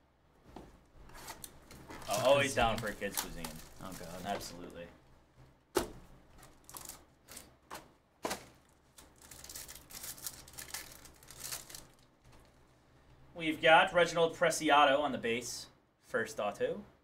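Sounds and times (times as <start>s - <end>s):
foil card pack crinkling: 1.2s - 4.7s, 6.4s - 7.6s, 8.3s - 12.5s.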